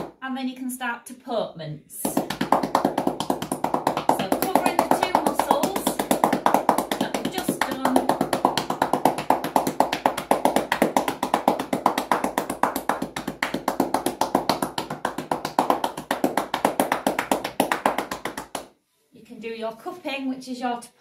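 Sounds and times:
hands patting on a horse: 2.1 - 18.7.

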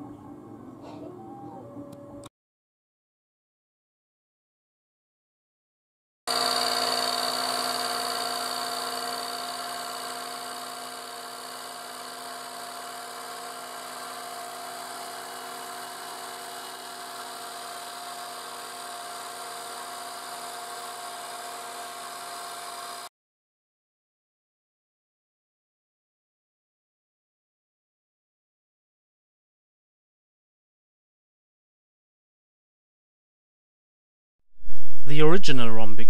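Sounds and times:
milling machine whine: 6.3 - 23.1.

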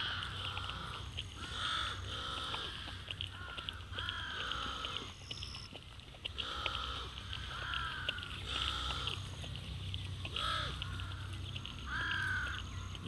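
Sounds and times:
harsh animal calls: 10.2 - 13.0.

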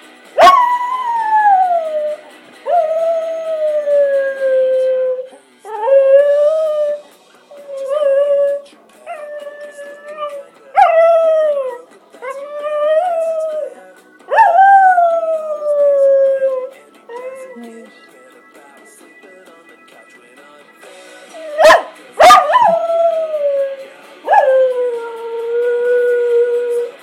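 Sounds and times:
music: 0.0 - 27.0
dog howling: 7.6 - 13.7, 14.3 - 17.7, 21.4 - 26.9.

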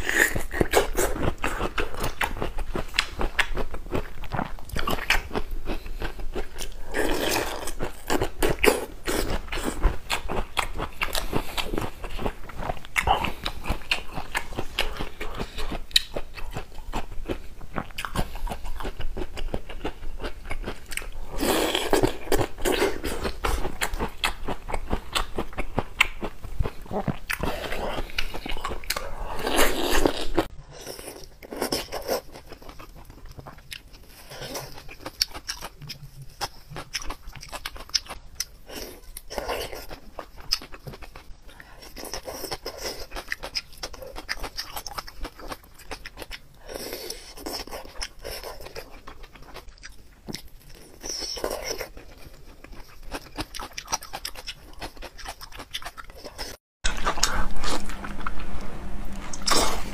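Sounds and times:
chewing and lip-smacking: 0.0 - 58.4
loud bite: 53.4 - 59.9.

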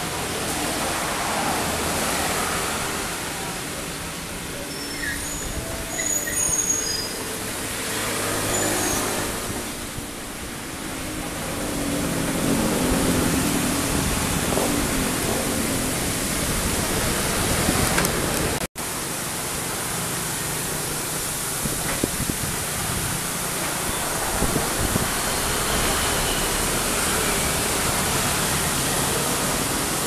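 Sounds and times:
excavator diesel engine working: 5.6 - 30.0
steady rushing noise: 9.2 - 30.0.

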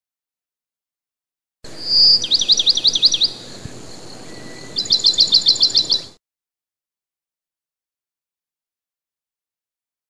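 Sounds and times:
songbird chirping: 1.7 - 6.2.

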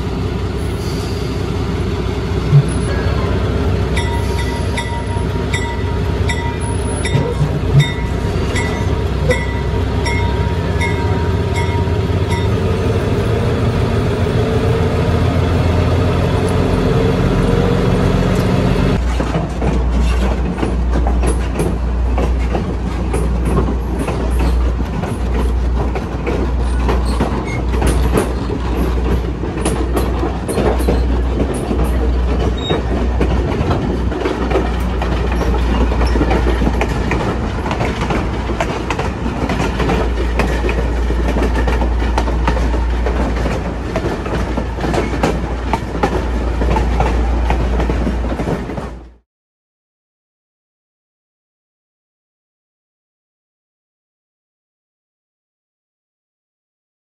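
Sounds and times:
diesel locomotive engine running: 0.0 - 49.2
wheels clicking over rail joints: 3.9 - 12.6, 18.3 - 49.2.

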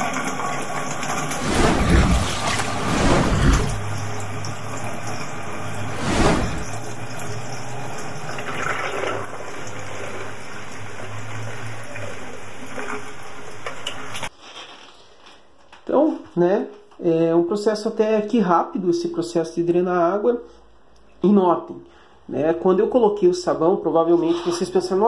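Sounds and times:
water pouring into floor drain: 0.0 - 14.3.

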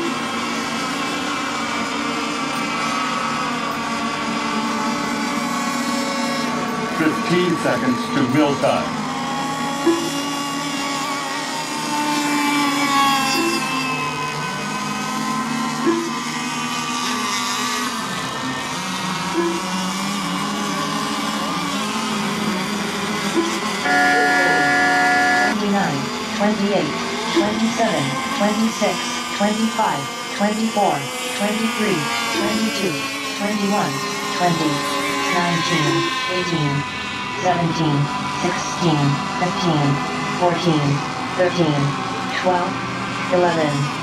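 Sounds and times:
model boat engines droning: 0.0 - 44.0
short tone: 13.3 - 14.0, 15.8 - 16.2, 19.4 - 19.7, 23.4 - 25.6.

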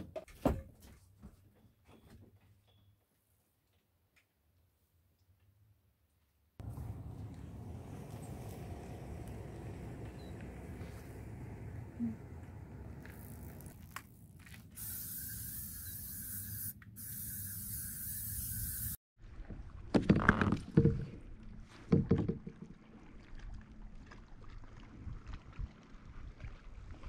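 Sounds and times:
paddle strokes splashing: 6.6 - 14.1
water movement: 6.6 - 14.8, 20.6 - 27.0.

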